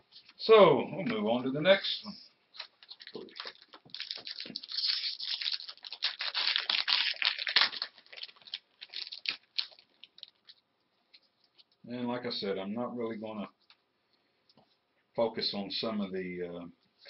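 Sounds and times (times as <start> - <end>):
plastic wrapper crinkling: 2.5 - 11.8.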